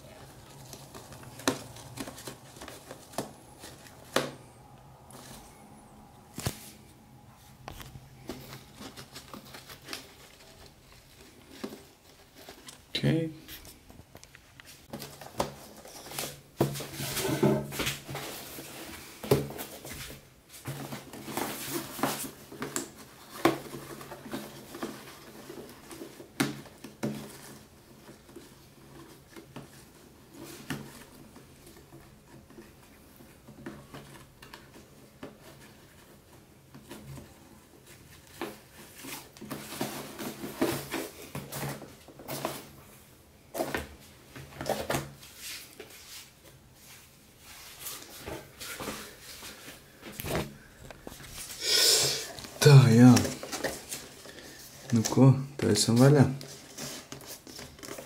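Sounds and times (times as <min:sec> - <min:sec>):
cardboard boxes knocking and rustling: 0:00.0 - 0:04.4, 0:14.9 - 0:42.8, 0:43.5 - 0:45.4
ribbon rustling: 0:00.0 - 0:17.0.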